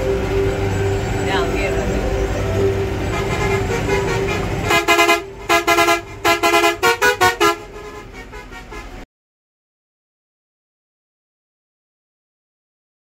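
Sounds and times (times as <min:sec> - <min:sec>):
bus horn short toots: 0:03.1 - 0:09.0.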